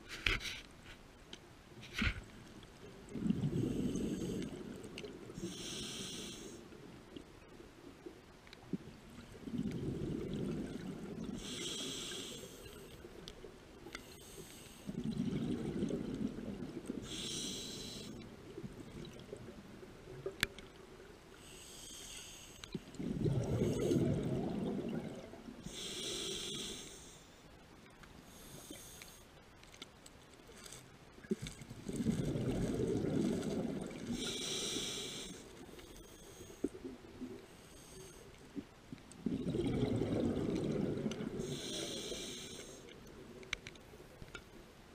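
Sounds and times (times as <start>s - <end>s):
exhaled bubbles rumbling: 2.9s - 5.4s, 8.8s - 11.4s, 14.9s - 17.0s, 22.8s - 25.6s, 31.6s - 34.2s, 39.2s - 41.5s
regulator inhale hiss: 3.5s - 4.7s, 5.4s - 6.8s, 11.4s - 13.0s, 13.9s - 14.9s, 17.0s - 18.2s, 21.4s - 22.8s, 25.6s - 27.5s, 28.2s - 29.3s, 34.0s - 36.8s, 37.4s - 38.4s, 41.4s - 43.0s.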